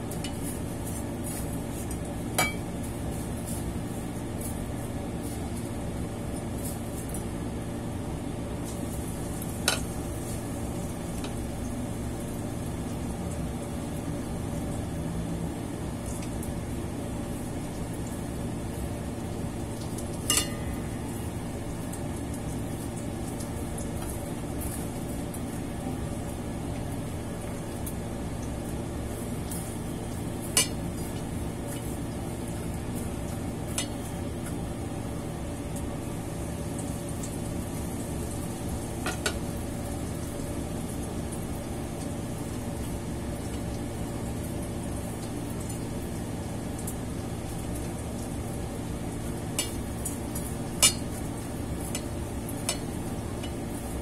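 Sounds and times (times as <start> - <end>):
food sizzling in oil: 0.0 - 54.0
utensils clinking against pan: 2.4 - 2.7, 20.3 - 20.9, 30.6 - 30.8, 50.8 - 51.2.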